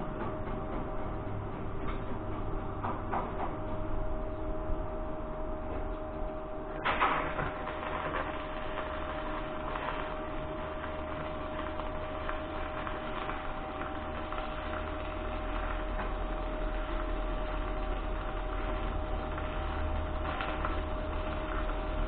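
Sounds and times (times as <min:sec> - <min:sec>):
low hum: 0:00.0 - 0:22.0
arc welding crackling hiss: 0:06.8 - 0:22.0.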